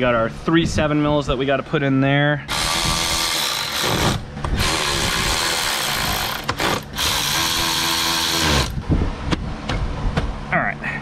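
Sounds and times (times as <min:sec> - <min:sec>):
cordless screwdriver driving screws: 0:02.5 - 0:08.8.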